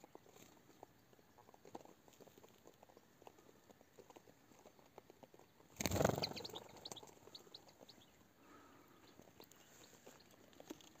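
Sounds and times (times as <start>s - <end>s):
bird wings fluttering: 5.7s - 7.0s.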